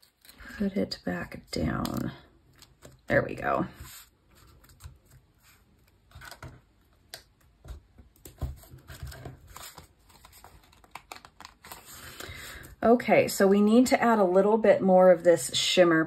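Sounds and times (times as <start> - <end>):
paper rustling: 3.7 - 6.6, 8.2 - 12.6.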